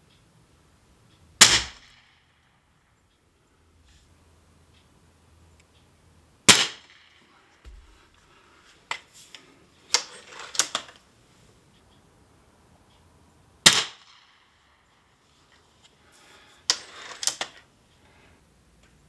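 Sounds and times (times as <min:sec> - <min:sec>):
air rifle shots: 0:01.4 - 0:02.1, 0:06.4 - 0:08.0, 0:13.6 - 0:14.4
quiet clicks and knocks: 0:07.0 - 0:11.1.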